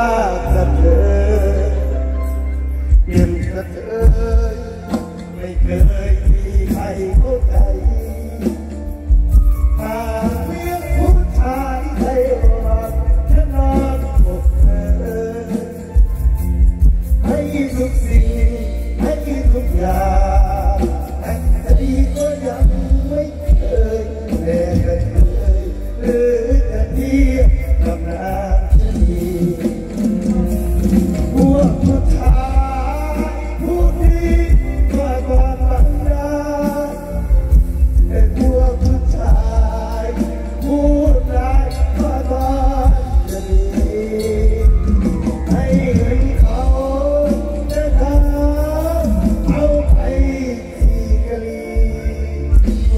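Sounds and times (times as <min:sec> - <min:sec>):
heavy bass and drum beat: 0:00.0 - 0:52.9
person singing: 0:00.0 - 0:52.9.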